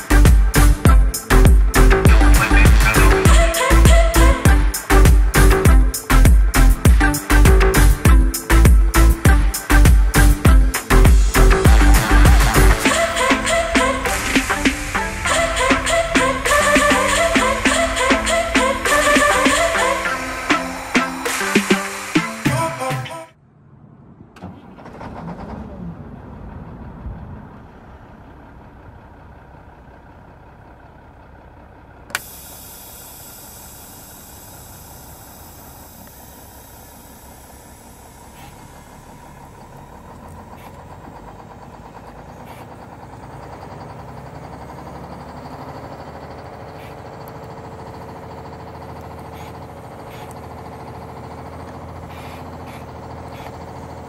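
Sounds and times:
short rising sound: 0:10.9 - 0:25.8
mechanical running hum: 0:12.4 - 0:22.1, 0:32.1 - 0:54.0.

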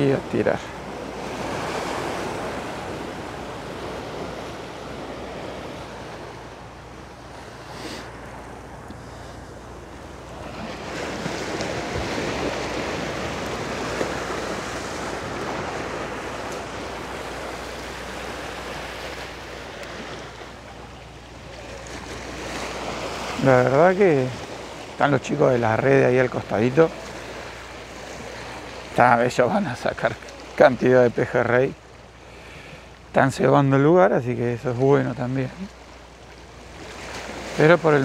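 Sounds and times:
surf washing against rocks: 0:00.0 - 0:38.0.

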